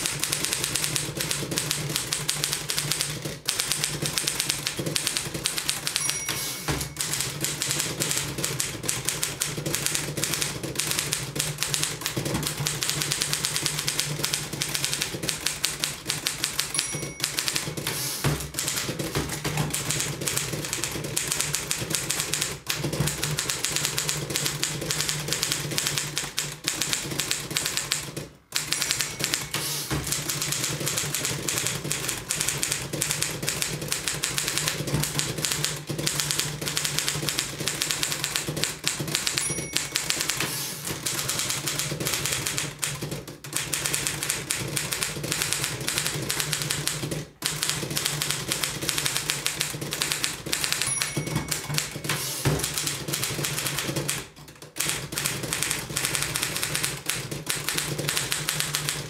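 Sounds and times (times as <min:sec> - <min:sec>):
typewriter clacking: 0:00.0 - 0:59.0
typewriter bell ringing: 0:05.2 - 0:08.9, 0:15.3 - 0:18.8, 0:28.6 - 0:30.7, 0:37.9 - 0:41.4, 0:50.0 - 0:53.8.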